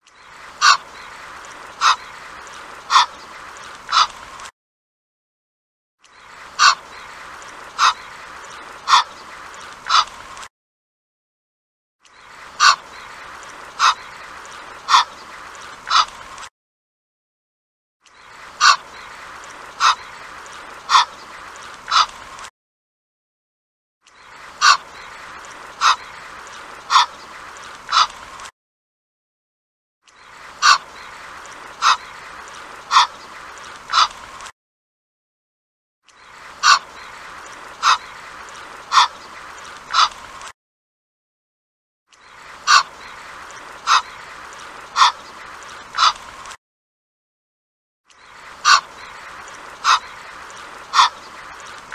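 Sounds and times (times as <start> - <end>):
goose calling: 0.6 - 2.3, 2.9 - 4.2, 6.6 - 10.1, 12.6 - 16.1, 18.6 - 22.2, 24.6 - 28.2, 30.6 - 34.2, 36.6 - 40.2, 42.6 - 45.3, 45.9 - 46.2, 48.6 - 51.9.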